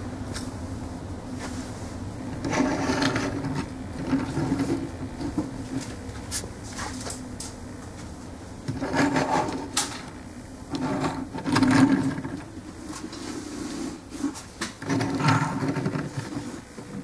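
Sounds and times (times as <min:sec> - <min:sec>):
plastic toy scraping on wood: 0:02.3 - 0:05.4, 0:08.7 - 0:10.0, 0:10.7 - 0:12.5, 0:13.5 - 0:17.0.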